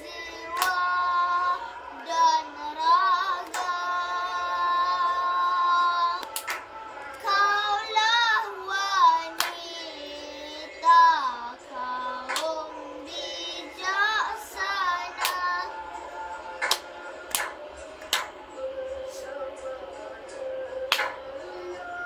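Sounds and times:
boy singing: 0.0 - 17.5
sharp hand claps: 0.5 - 0.9, 3.4 - 3.9, 6.2 - 7.3, 9.4 - 9.7, 12.2 - 12.7, 15.1 - 18.6, 20.9 - 21.5.

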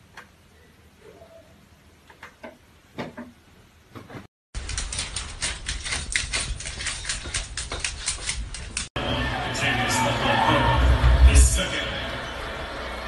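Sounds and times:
dog claws clicking on hardwood floor: 4.6 - 8.9.

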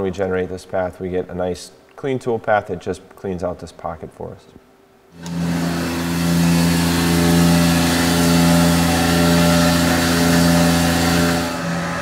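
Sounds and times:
mill spindle cutting tone: 5.2 - 12.0.

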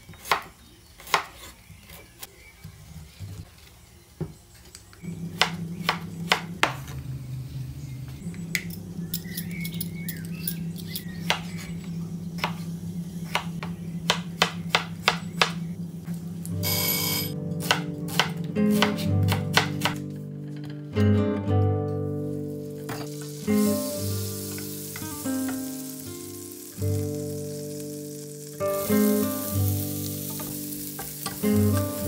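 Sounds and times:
knife chopping on cutting board: 5.4 - 6.8, 13.3 - 15.6, 17.6 - 20.0
background music: 16.0 - 32.0.

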